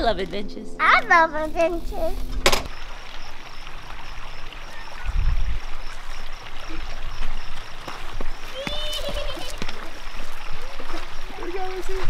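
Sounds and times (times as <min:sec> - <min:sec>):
creek water over rocks: 0:02.7 - 0:12.0.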